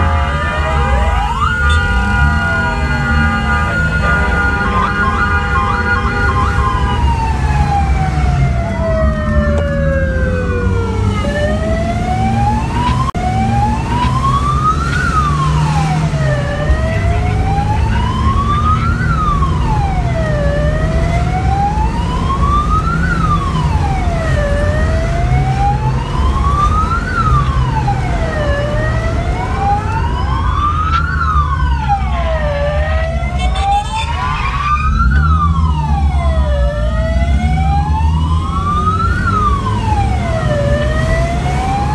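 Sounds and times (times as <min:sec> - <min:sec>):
fire engine sirens wailing: 0:00.0 - 0:41.9
vehicle engine and road rumble: 0:00.0 - 0:41.9.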